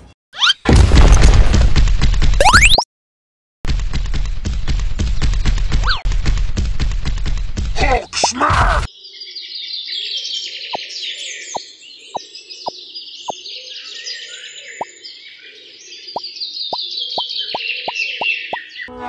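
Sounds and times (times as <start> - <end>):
cartoon bloop pops: 2.4 - 2.8
birds chirping chorus: 8.8 - 19.0.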